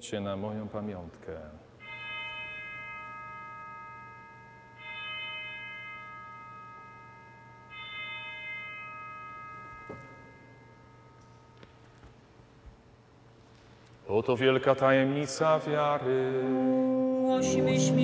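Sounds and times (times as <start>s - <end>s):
altar bell ringing: 1.8s - 12.3s.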